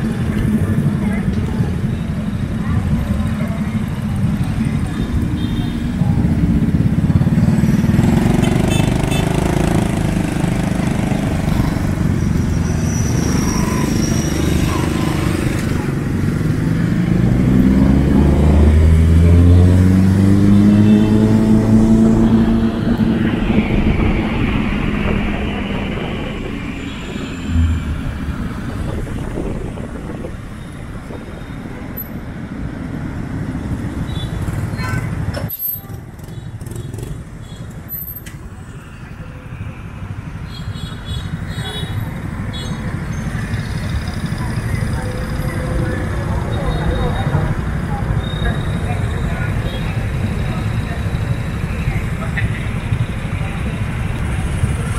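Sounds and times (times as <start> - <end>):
dense scooter traffic: 0.0 - 54.9
scooter engine accelerating: 13.4 - 30.3.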